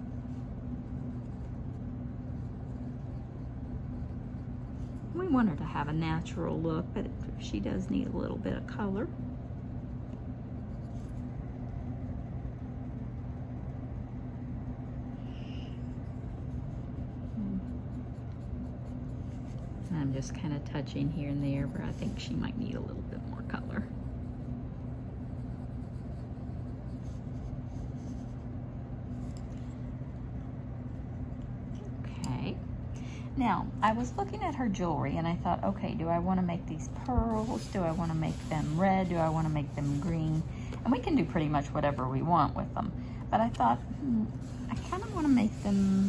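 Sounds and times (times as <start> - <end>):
colored pencil scratching on paper: 0.0 - 6.7, 10.6 - 11.3, 15.8 - 28.5, 37.0 - 42.3, 44.4 - 46.0
low background hum: 0.0 - 46.0.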